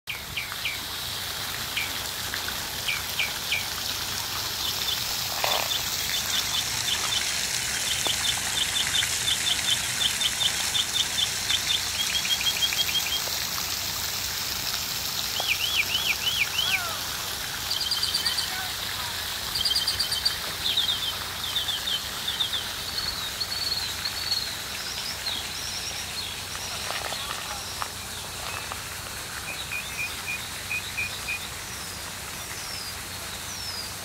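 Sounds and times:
fountain water splashing: 0.1 - 34.0
songbirds chirping and trilling: 2.8 - 13.3, 17.6 - 34.0.

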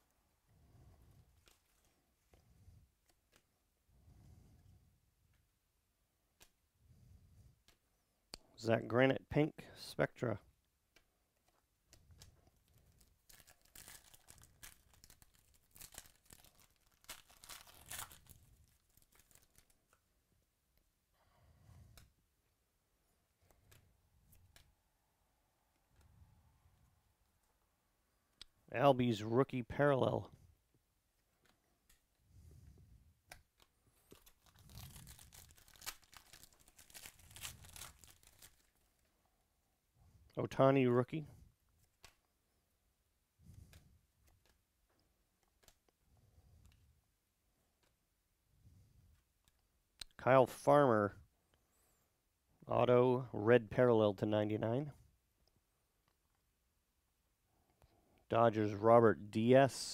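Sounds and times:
foil wrappers tearing and crinkling: 12.7 - 19.9, 34.0 - 38.8.

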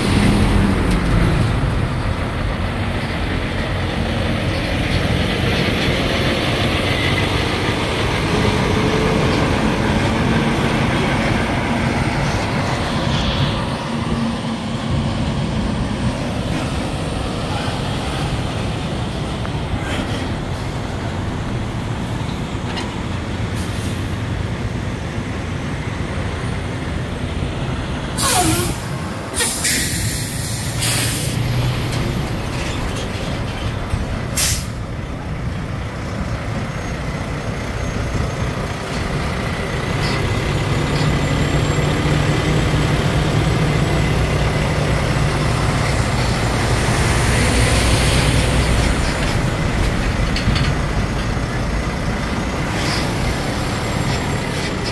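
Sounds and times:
truck engines rumbling: 0.0 - 54.9
brake squeal: 28.1 - 34.9, 36.6 - 44.2, 52.5 - 54.9
air brake hisses: 28.2 - 31.4, 34.4 - 34.8.

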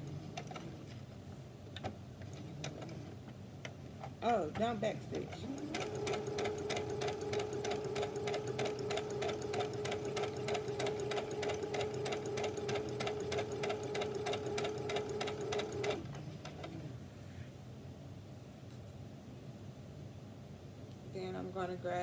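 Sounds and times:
sewing machine stitching: 4.5 - 16.8.

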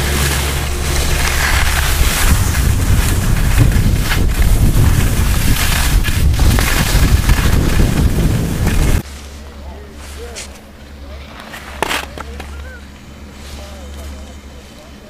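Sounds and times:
wind buffeting microphone: 0.0 - 9.0
skis scraping on snow: 0.0 - 15.0.

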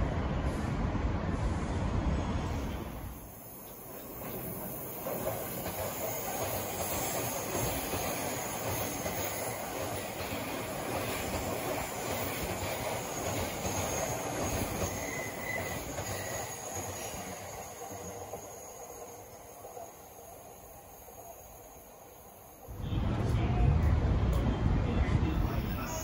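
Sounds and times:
train wheels rumbling on rail: 0.0 - 20.9, 22.7 - 26.0
faint high wheel squeal: 13.0 - 22.5.

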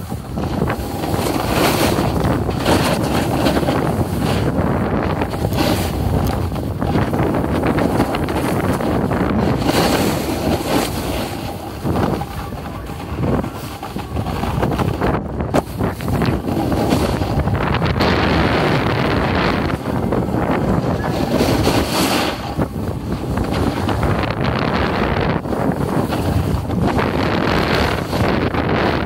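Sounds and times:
skis sliding on packed snow: 0.0 - 29.0
wind buffeting microphone: 0.0 - 29.0.

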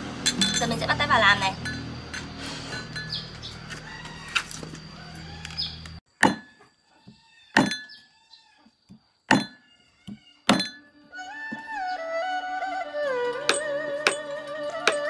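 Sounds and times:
cleaver chopping on wooden block: 6.2 - 6.6, 7.6 - 7.9, 9.3 - 9.6, 10.5 - 10.8, 13.5 - 15.0.

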